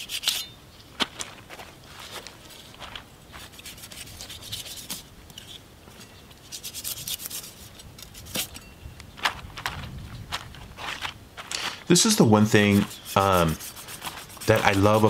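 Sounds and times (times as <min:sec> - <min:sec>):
knife sawing through shark skin: 0:12.6 - 0:15.0.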